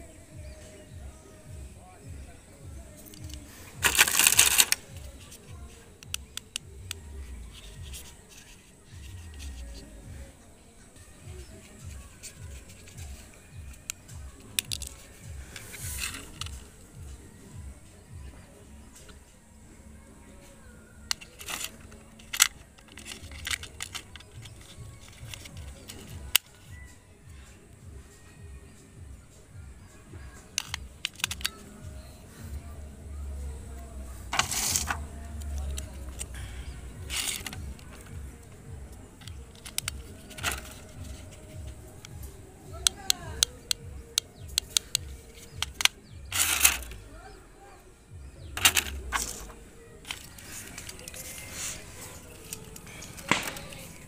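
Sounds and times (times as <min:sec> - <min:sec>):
batteries snapping into compartment: 0:02.9 - 0:08.6, 0:11.5 - 0:16.7, 0:21.0 - 0:26.6, 0:30.5 - 0:31.8, 0:34.3 - 0:36.4, 0:37.1 - 0:38.5, 0:39.2 - 0:42.2, 0:42.8 - 0:47.0, 0:48.6 - 0:54.0
plastic toy clicking: 0:03.0 - 0:05.4, 0:06.0 - 0:09.6, 0:11.6 - 0:16.6, 0:21.0 - 0:26.7, 0:30.5 - 0:31.8, 0:34.3 - 0:36.4, 0:37.1 - 0:38.1, 0:39.2 - 0:42.2, 0:42.8 - 0:47.0, 0:48.6 - 0:54.0
plastic packaging crinkling: 0:03.1 - 0:04.9
plastic clicks and knocks: 0:14.6 - 0:15.0, 0:21.1 - 0:26.5, 0:30.6 - 0:31.6, 0:42.8 - 0:47.0.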